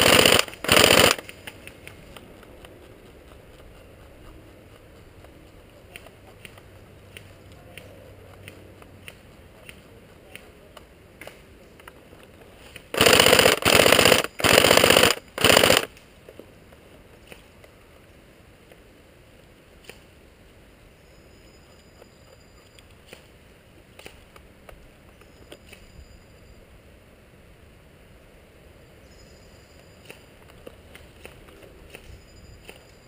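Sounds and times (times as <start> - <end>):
airsoft gun automatic fire: 0.0 - 1.3, 12.9 - 15.9
faint scattered clicks: 0.0 - 18.0.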